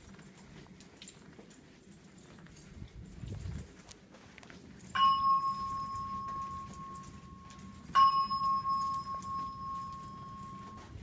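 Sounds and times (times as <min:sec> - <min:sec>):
alarm speaker chime tone: 0:05.0 - 0:11.0.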